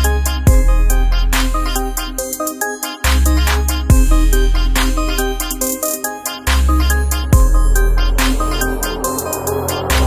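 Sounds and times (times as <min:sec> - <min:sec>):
bright electronic melody: 0:00.0 - 0:10.0
deep electronic bass line: 0:06.6 - 0:10.0.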